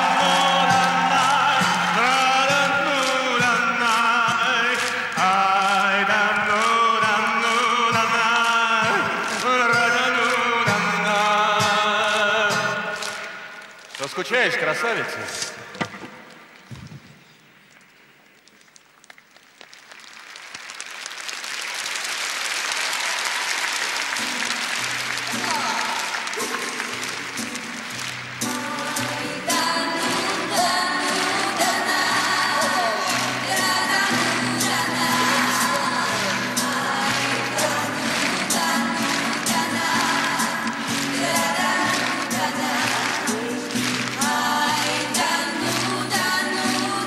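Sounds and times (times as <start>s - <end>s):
person singing long held notes: 0.0s - 13.2s, 28.4s - 47.0s
audience applauding: 0.0s - 15.2s, 18.8s - 47.0s.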